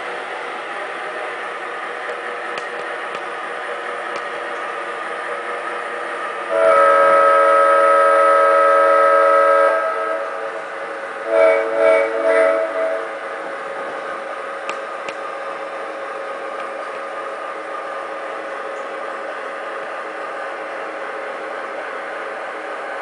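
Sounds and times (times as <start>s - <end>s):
model train horn: 6.4s - 13.2s.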